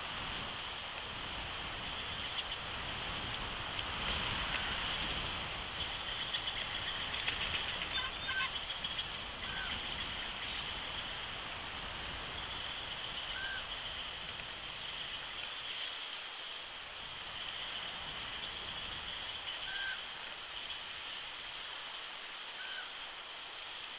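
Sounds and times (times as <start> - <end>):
steady high hiss: 0.0 - 23.9
faint bird chirps: 12.3 - 14.0, 18.4 - 20.8.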